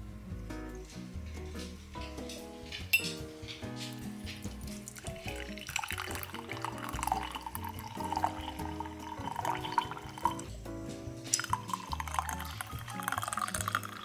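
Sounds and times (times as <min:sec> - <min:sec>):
background music: 0:00.0 - 0:14.0
tea pouring into a cup: 0:04.8 - 0:10.6, 0:11.3 - 0:14.0.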